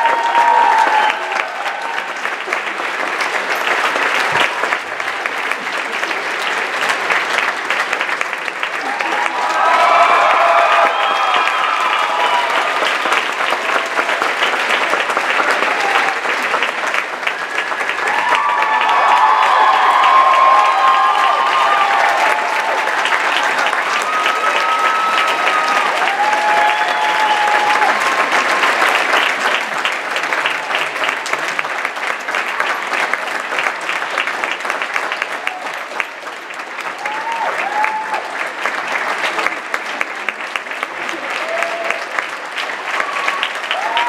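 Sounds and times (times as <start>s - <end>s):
audience applauding: 0.0s - 44.0s.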